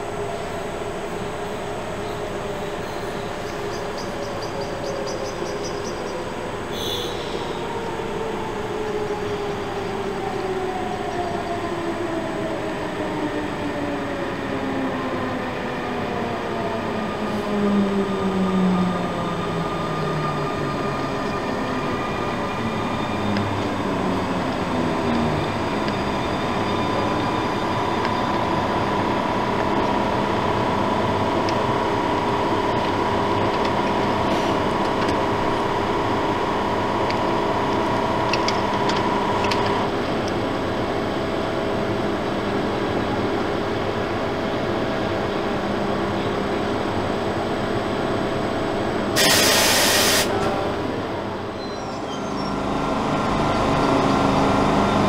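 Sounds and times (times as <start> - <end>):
locomotive humming and whining: 0.0 - 55.0
train rumbling past: 0.0 - 55.0
loud hiss: 49.2 - 50.4.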